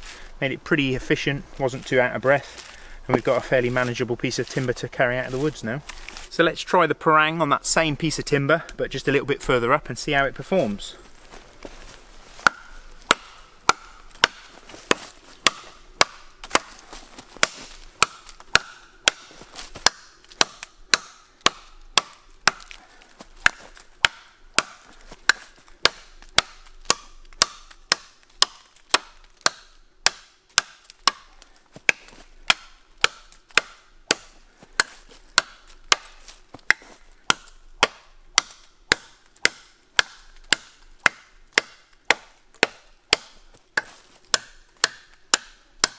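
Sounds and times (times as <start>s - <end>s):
blade chopping wood: 12.4s - 45.9s.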